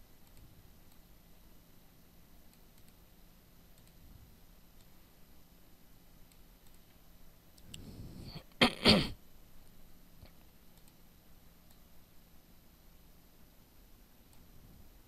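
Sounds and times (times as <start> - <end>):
faint mouse clicks: 0.2 - 1.1, 2.4 - 3.1, 3.7 - 4.0, 4.7 - 5.0, 6.2 - 7.8, 10.2 - 11.0, 11.6 - 11.9, 14.2 - 14.5.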